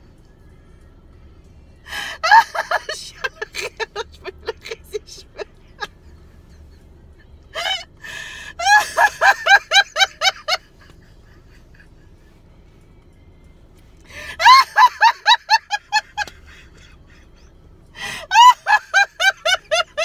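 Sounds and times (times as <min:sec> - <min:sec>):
woman laughing out loud: 0:02.0 - 0:06.7, 0:07.6 - 0:12.0, 0:14.2 - 0:17.4, 0:18.0 - 0:20.0.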